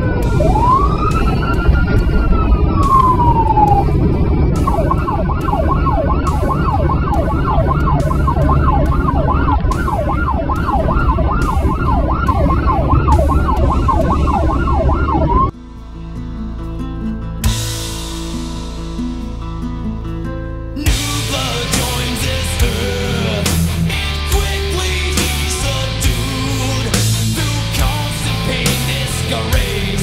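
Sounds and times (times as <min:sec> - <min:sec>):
fire truck siren wailing and yelping: 0:00.0 - 0:15.6
engine and road rumble: 0:00.0 - 0:30.0.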